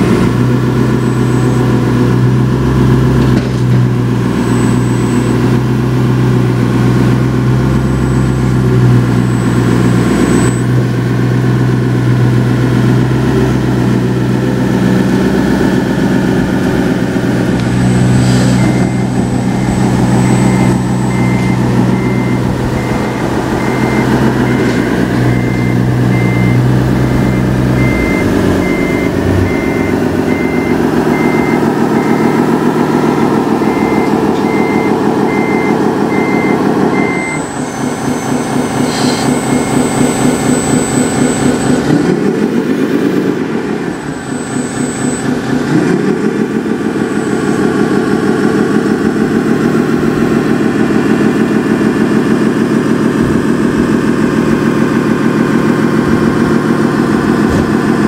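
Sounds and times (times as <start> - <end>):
diesel engine sound: 0.0 - 58.0
reversing beep: 0.8 - 1.8, 4.3 - 5.8, 7.7 - 10.9, 18.5 - 42.2, 44.0 - 46.2.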